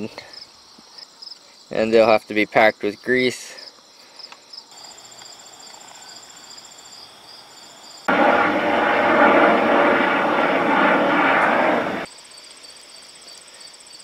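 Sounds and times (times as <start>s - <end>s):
crickets chirring: 0.0s - 14.0s
helicopter rotor noise: 8.1s - 12.1s.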